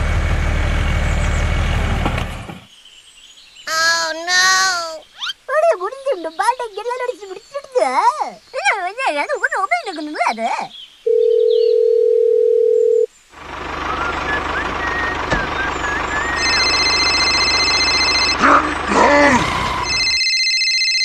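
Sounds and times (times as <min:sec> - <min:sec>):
tractor engine rumbling: 0:00.0 - 0:02.7, 0:13.3 - 0:20.2
steady telephone tone: 0:11.1 - 0:13.1, 0:15.8 - 0:21.0
phone ringing electronic trill: 0:16.0 - 0:21.0.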